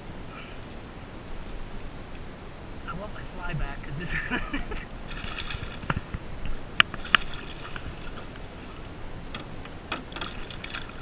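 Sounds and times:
water sloshing on boat hull: 4.6s - 11.0s
fish splashing at the surface: 5.1s - 6.0s, 6.8s - 8.5s, 10.0s - 11.0s.

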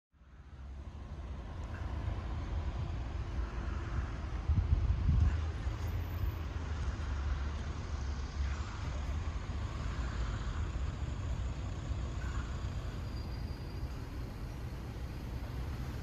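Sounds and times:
low street rumble: 0.1s - 16.0s.

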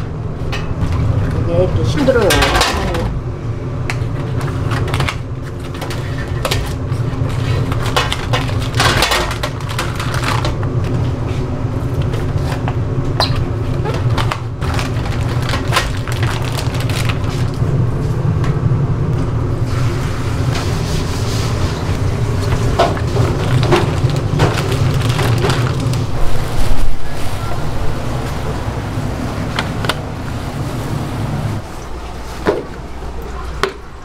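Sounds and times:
utensil clatter: 0.0s - 3.2s, 3.9s - 11.0s, 20.5s - 27.0s
steady low hum: 0.0s - 34.0s.

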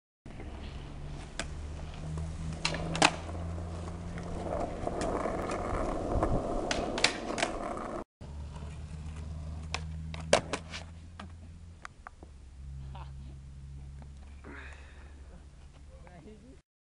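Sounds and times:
skateboard wheels rolling on asphalt: 0.3s - 12.4s
skateboard clacks: 2.5s - 3.3s, 4.2s - 11.3s.

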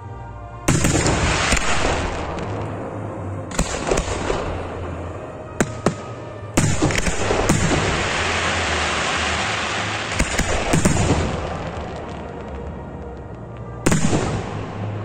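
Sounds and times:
noisy wash from fireworks: 0.6s - 15.0s
firework shells bursting: 5.6s - 12.6s.

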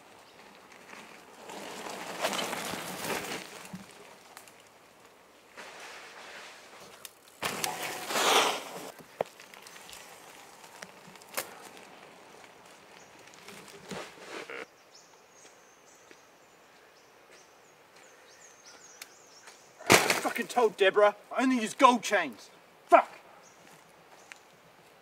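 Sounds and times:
bike tyres rolling over dirt: 0.0s - 14.7s.

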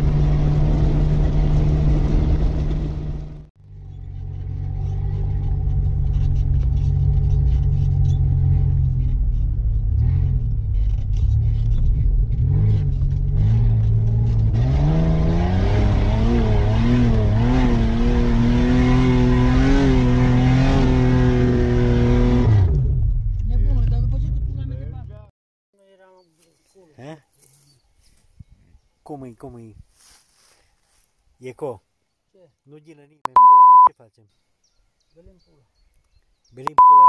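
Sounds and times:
car engine revving: 0.0s - 24.8s.

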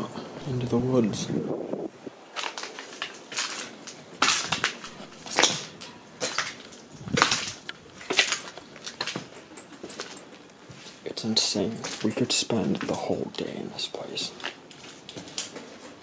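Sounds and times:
footsteps over broken debris: 2.2s - 13.6s, 14.3s - 16.0s.

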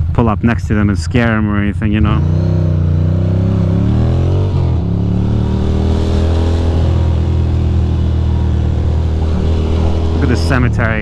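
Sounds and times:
motorcycle engine running: 0.0s - 11.0s
wind and road noise: 0.0s - 11.0s.

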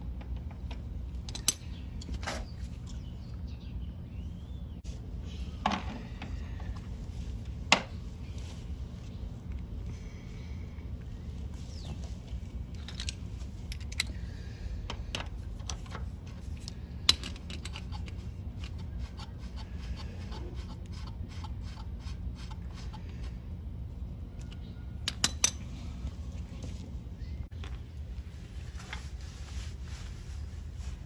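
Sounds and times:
steady low rumble: 0.0s - 31.0s
metal nut clicking and scraping: 1.2s - 2.2s, 12.7s - 14.2s, 16.6s - 23.0s, 25.0s - 25.6s.

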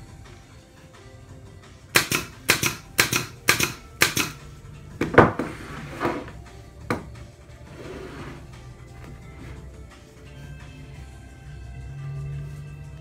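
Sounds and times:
pin nailer firing: 1.9s - 4.4s
knocks on workbench: 5.0s - 6.3s, 6.9s - 7.1s.

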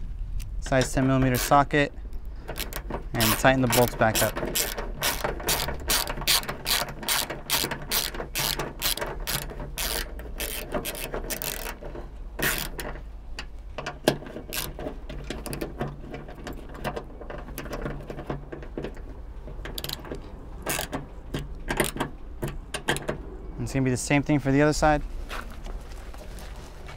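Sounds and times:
ratchet clicking: 2.4s - 16.2s, 19.6s - 23.1s.

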